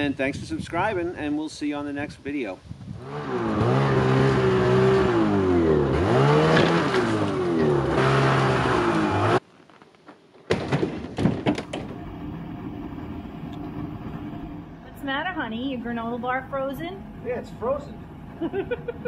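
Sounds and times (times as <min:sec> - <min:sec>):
snowmobile engine revving: 0:03.0 - 0:09.4
steady hum: 0:11.8 - 0:19.0.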